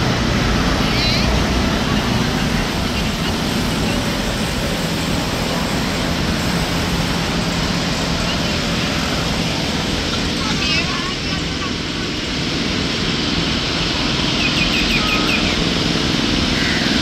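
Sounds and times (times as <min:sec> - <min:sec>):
motor drone with low hum: 0:00.0 - 0:17.0
wide rushing noise: 0:00.0 - 0:17.0.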